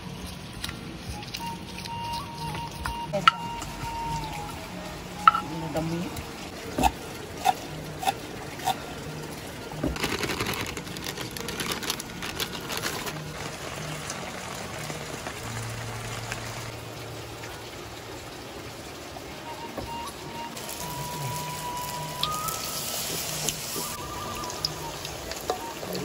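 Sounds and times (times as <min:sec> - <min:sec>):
crackly scraping and rustling: 0:09.8 - 0:16.7.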